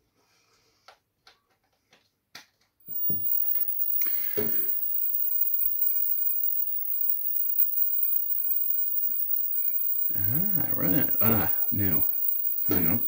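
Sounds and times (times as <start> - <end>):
high-pitched whine: 2.9 - 13.0
mains hum and buzz: 2.9 - 13.0.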